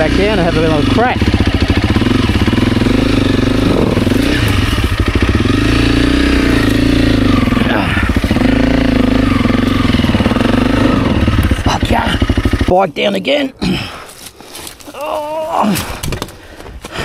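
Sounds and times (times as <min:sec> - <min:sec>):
motorcycle engine revving hard: 0:00.0 - 0:12.7.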